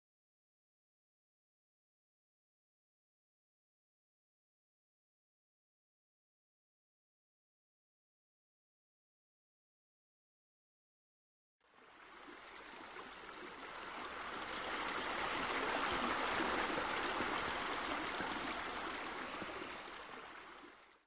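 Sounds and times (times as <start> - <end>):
water splashing from water wall: 11.7 - 21.0.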